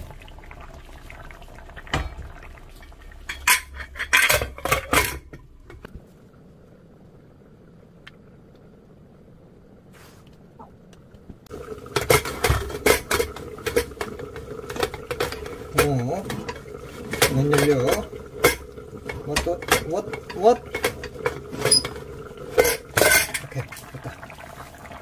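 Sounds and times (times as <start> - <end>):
metal pots and utensils clattering: 1.8 - 5.9, 11.5 - 24.3.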